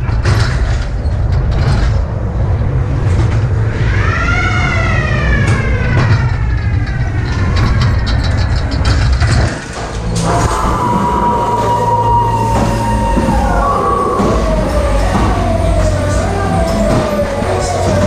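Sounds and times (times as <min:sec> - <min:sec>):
ride car rumbling along track: 0:00.0 - 0:18.0
wailing tone: 0:03.6 - 0:08.5, 0:09.7 - 0:18.0.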